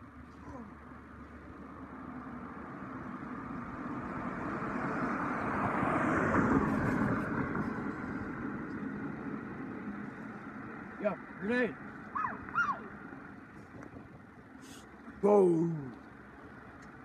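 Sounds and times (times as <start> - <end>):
car driving past: 3.4 - 9.5.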